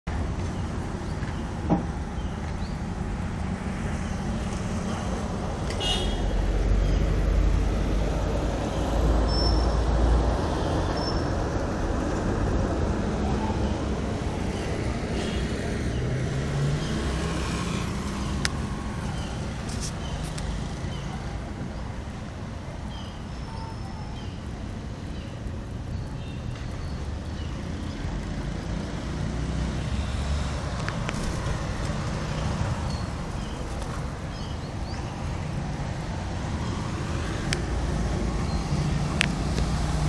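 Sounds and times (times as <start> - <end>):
road traffic rumble: 0.0 - 40.0
vehicle passing: 2.0 - 22.3, 26.6 - 40.0
car horn toots: 5.8 - 6.2.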